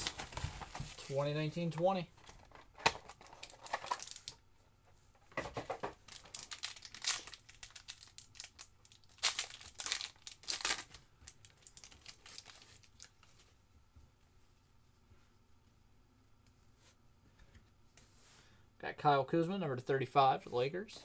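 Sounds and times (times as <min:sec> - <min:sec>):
wrapper tearing and crinkling: 0:02.8 - 0:04.4, 0:06.0 - 0:13.3.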